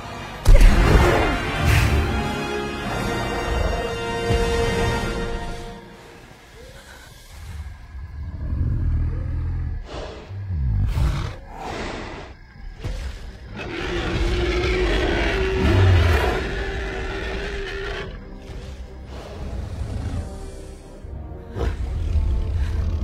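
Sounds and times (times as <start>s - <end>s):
dinosaur roaring: 6.5s - 20.8s
deep rumbling: 6.6s - 17.3s.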